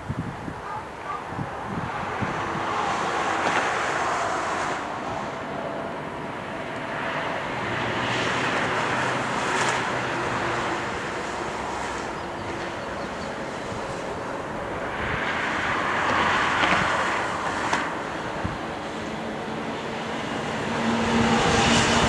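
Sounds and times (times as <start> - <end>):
wind buffeting microphone: 0.0 - 5.6, 10.9 - 22.0
jet airliner engines roaring: 0.0 - 22.0.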